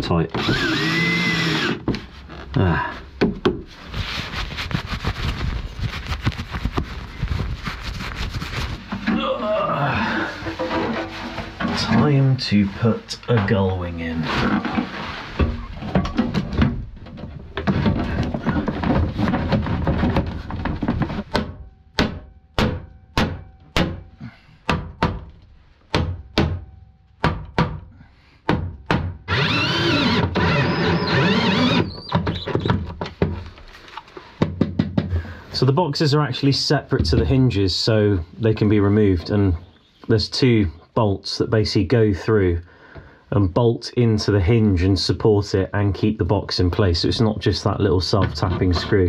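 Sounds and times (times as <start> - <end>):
metal panel rattling and scraping: 10.3 - 12.3, 14.3 - 21.3.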